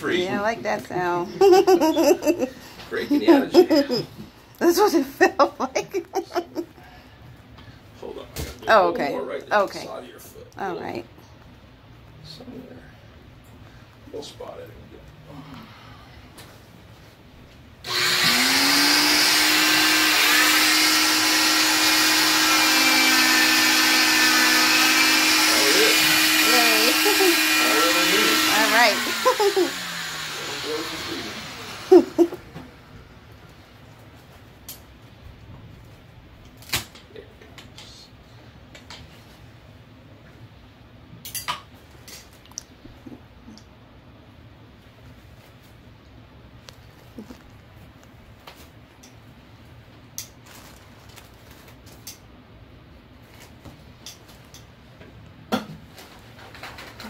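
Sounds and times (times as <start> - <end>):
cast saw motor whine: 17.8 - 32.9
vacuum rushing hiss: 17.9 - 33.2.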